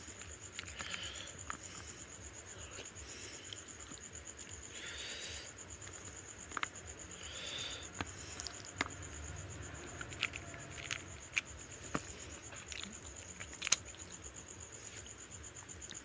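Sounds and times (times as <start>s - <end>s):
chewing and smacking: 0.0s - 2.0s, 7.9s - 9.1s, 9.7s - 16.0s
faint high-pitched whine: 0.0s - 16.0s.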